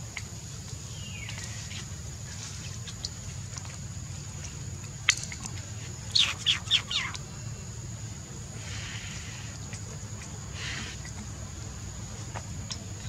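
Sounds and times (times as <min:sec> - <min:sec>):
low background hum: 0:00.0 - 0:13.0
small animal chirping calls: 0:05.1 - 0:07.3.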